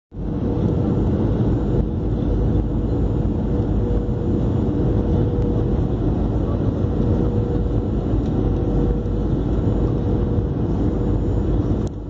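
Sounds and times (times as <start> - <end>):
aircraft engines rushing: 0.2 - 12.0.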